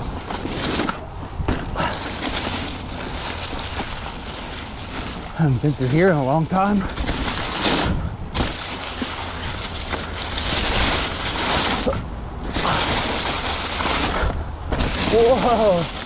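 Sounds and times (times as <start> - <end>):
bike tyres crunching leaves: 0.0 - 16.0.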